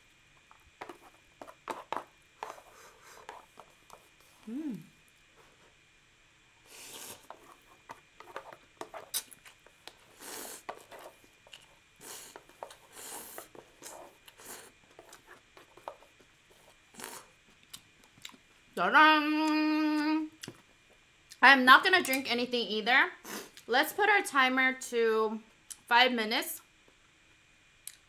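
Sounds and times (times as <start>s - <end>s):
person making drawn-out voiced sound: 4.4s - 4.9s
noodle slurping: 6.7s - 7.6s, 8.8s - 11.1s.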